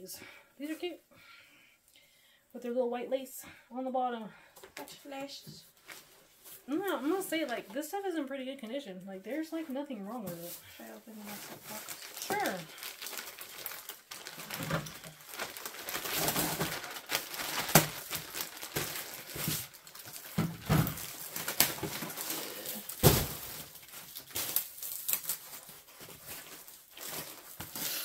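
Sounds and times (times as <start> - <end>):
bags and paper rustling: 9.3 - 28.0.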